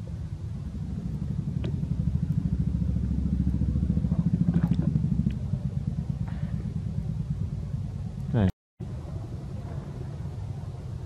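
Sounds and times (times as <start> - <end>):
pulsing engine rumble: 0.0 - 11.0.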